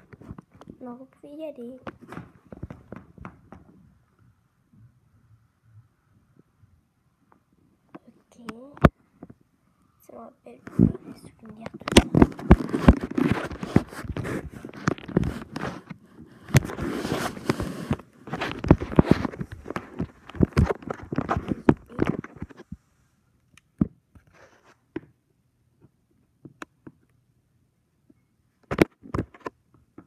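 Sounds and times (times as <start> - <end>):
handling clicks and rustling: 10.5 - 22.7.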